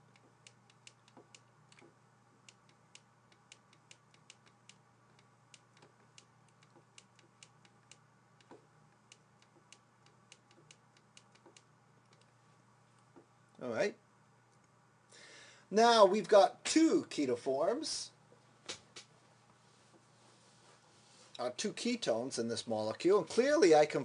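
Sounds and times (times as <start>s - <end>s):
steady low hum: 0.0s - 24.0s
stylus tapping on tablet: 0.1s - 12.3s.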